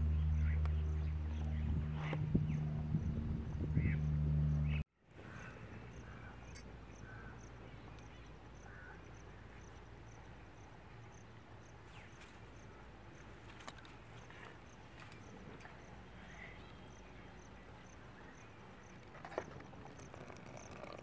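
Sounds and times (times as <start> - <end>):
faint outdoor ambience: 0.0 - 21.0
cricket chirping: 5.4 - 21.0.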